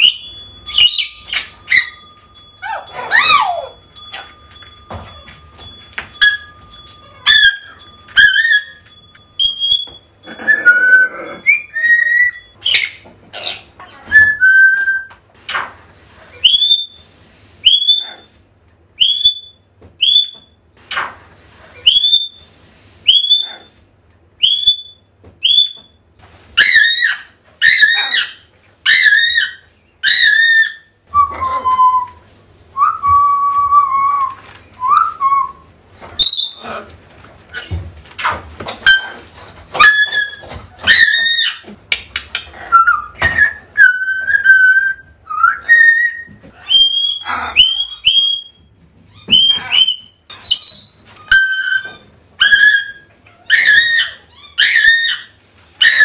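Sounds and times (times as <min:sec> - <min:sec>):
parrot whistling: 0:07.2 - 0:13.0, 0:14.1 - 0:15.1, 0:16.3 - 0:17.0, 0:17.6 - 0:18.3, 0:19.0 - 0:20.5, 0:21.8 - 0:22.4, 0:24.4 - 0:25.9, 0:26.6 - 0:32.2, 0:32.8 - 0:36.6, 0:42.7 - 0:48.6, 0:49.2 - 0:56.0.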